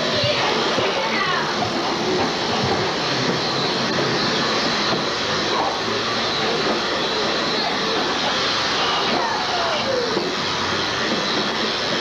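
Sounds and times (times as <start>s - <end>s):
plastic wheels rolling on concrete: 0.0s - 5.0s.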